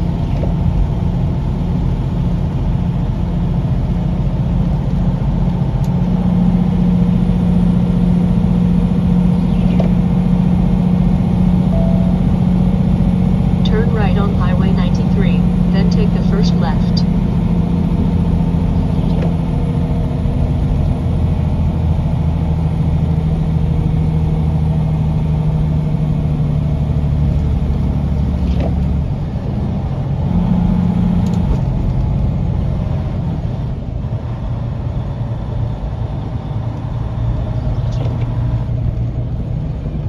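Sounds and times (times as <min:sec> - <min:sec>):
road noise: 0:00.0 - 0:40.0
truck engine drone: 0:00.0 - 0:40.0.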